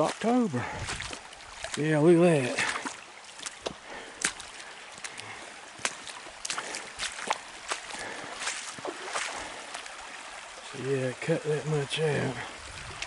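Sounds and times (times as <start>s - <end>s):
footsteps on stones: 0.0s - 9.6s
creek water trickling over rocks: 0.0s - 13.0s.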